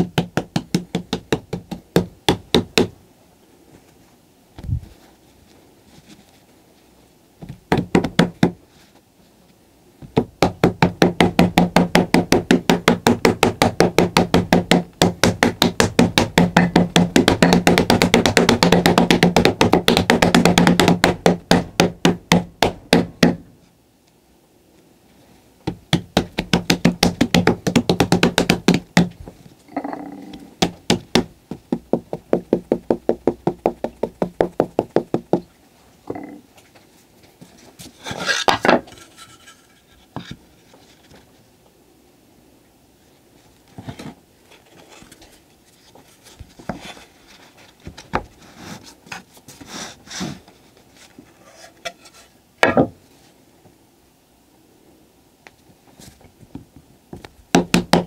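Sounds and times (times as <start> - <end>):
hands patting cloth on a board: 0.0 - 3.0, 7.4 - 8.6, 10.0 - 23.5, 25.6 - 29.4, 30.3 - 35.5, 56.5 - 58.0.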